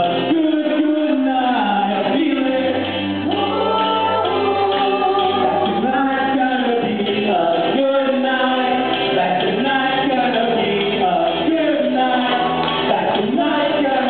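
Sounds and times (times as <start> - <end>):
group of voices singing: 0.0 - 14.0.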